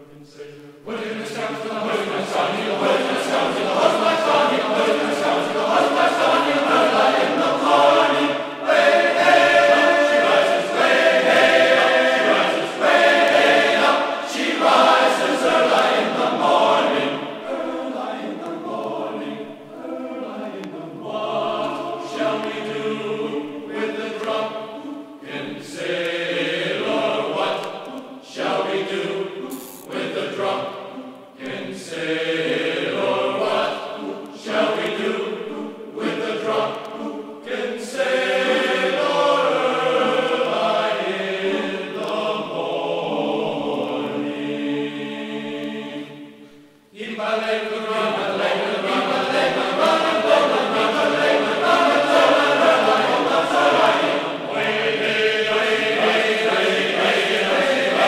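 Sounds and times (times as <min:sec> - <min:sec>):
choral singing: 0:00.0 - 0:58.0.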